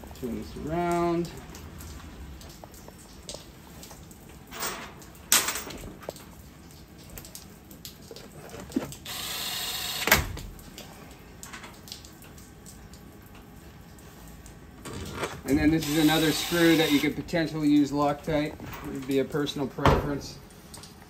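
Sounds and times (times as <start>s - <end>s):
cordless driver driving screw: 15.8s - 17.1s.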